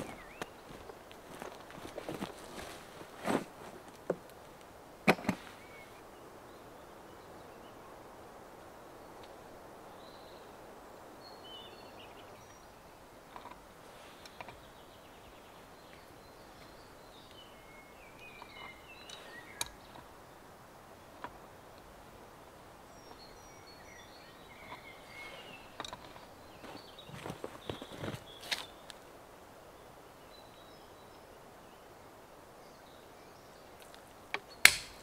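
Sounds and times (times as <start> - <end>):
birds chirping: 0.0 - 35.0
faint outdoor hiss: 0.0 - 35.0
sharp clicks: 33.9 - 35.0.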